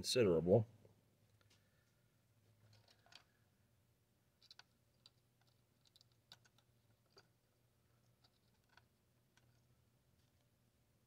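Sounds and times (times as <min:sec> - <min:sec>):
faint low hum: 0:00.0 - 0:11.0
small electronic components clicking: 0:04.4 - 0:07.4.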